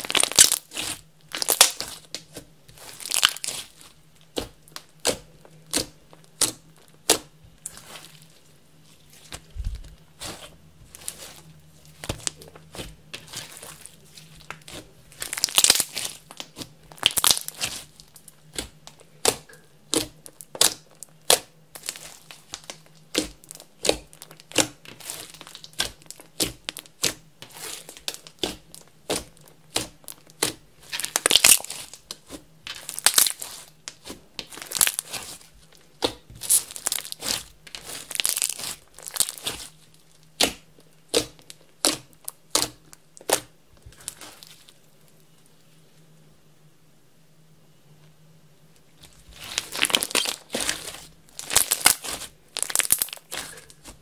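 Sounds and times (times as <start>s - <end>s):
slime crackling when stretched: 0.0s - 8.4s, 9.0s - 44.8s, 49.0s - 54.0s
slime clicking and popping: 4.3s - 7.8s, 14.4s - 27.2s, 27.9s - 44.2s, 49.6s - 53.9s.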